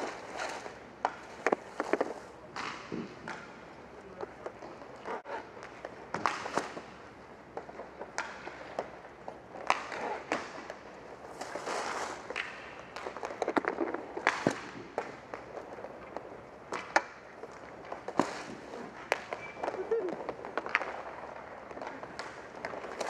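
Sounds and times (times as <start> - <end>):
scraping slide on court floor: 0.0 - 3.6, 9.6 - 15.8, 16.8 - 23.0
hockey sticks and puck clacking: 0.0 - 23.0
skate wheels rolling: 0.0 - 23.0.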